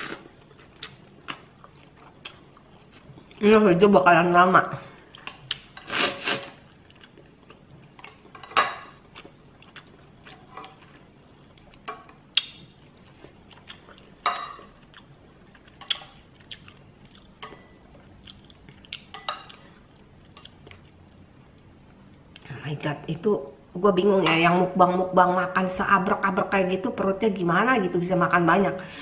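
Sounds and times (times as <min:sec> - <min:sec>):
chewing and lip-smacking: 0:06.7 - 0:08.3, 0:09.0 - 0:14.2, 0:14.8 - 0:21.0.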